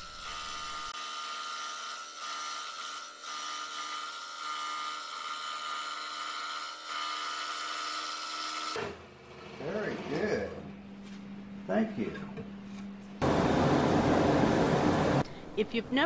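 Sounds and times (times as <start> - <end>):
scroll saw cutting wood: 0.0 - 9.0.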